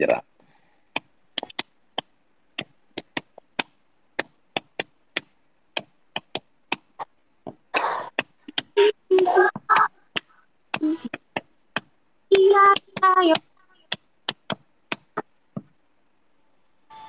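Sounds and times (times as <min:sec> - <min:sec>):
sharp clicks or taps: 0:09.6 - 0:15.7.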